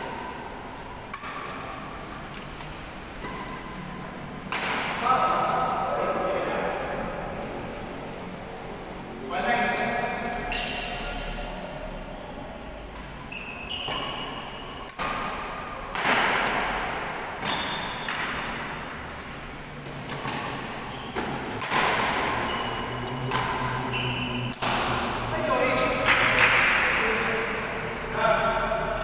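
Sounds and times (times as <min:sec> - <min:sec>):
racket hitting shuttlecock: 0:01.0 - 0:02.6, 0:03.2 - 0:03.8, 0:04.4 - 0:05.1, 0:10.5 - 0:11.0, 0:12.9 - 0:27.0
shoes squeaking on court floor: 0:02.1 - 0:03.8, 0:13.0 - 0:15.4, 0:17.4 - 0:25.0.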